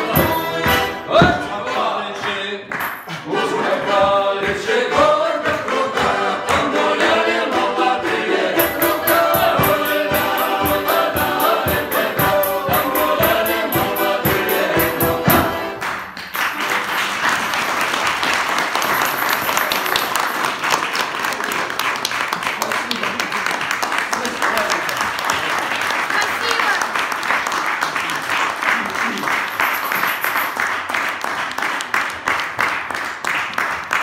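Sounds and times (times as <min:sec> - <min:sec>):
button accordion: 0:00.0 - 0:02.5, 0:03.6 - 0:15.8
choir singing folk song: 0:00.0 - 0:15.9
balalaika: 0:00.0 - 0:17.0
bass drum beat: 0:08.6 - 0:15.7
audience applauding: 0:15.6 - 0:34.0.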